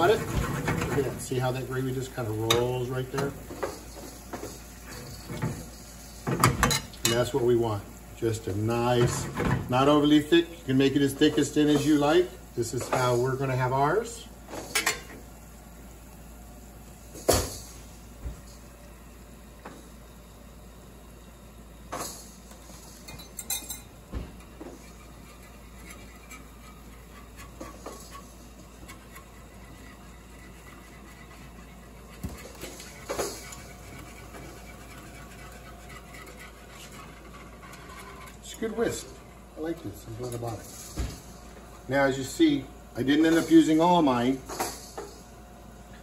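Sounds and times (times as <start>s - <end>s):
pots and pans clinking: 23.0s - 24.9s.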